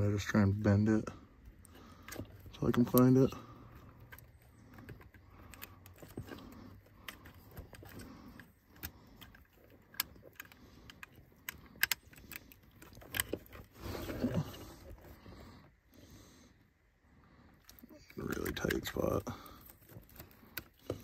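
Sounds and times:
wires rustling: 0:00.0 - 0:15.7, 0:17.6 - 0:21.0
plastic connectors clicking: 0:07.0 - 0:13.7.

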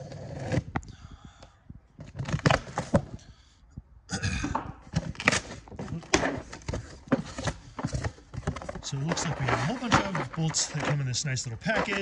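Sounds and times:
cardboard rustling and scraping: 0:02.0 - 0:03.2, 0:04.8 - 0:12.0.

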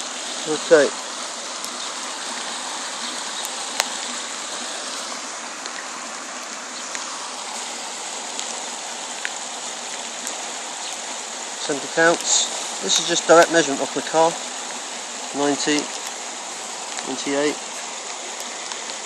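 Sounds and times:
floodwater rushing: 0:00.0 - 0:19.0
faint sharp clicks: 0:18.0 - 0:19.0.

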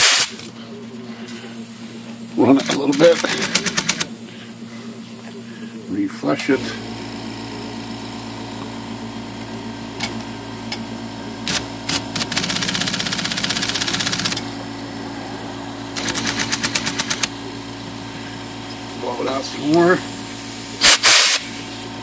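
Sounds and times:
typewriter motor humming: 0:02.4 - 0:04.2, 0:11.4 - 0:14.6, 0:15.9 - 0:17.4
typewriter clicks: 0:11.5 - 0:14.4, 0:16.0 - 0:17.3
spray hiss: 0:20.3 - 0:21.8.

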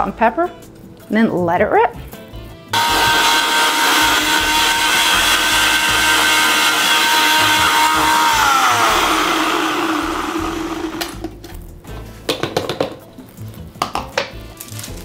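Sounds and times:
blender running: 0:02.8 - 0:11.2.

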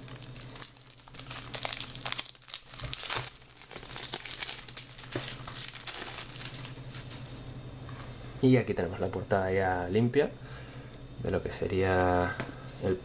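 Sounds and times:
plastic shrink-wrap crinkling: 0:00.0 - 0:07.2.

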